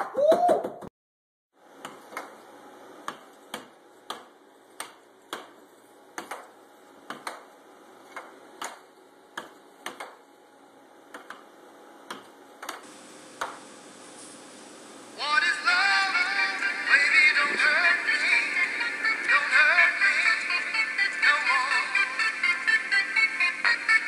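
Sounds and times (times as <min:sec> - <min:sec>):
air hockey puck clacking: 0:06.2 - 0:07.5, 0:08.1 - 0:10.2
steady hiss: 0:12.9 - 0:24.0.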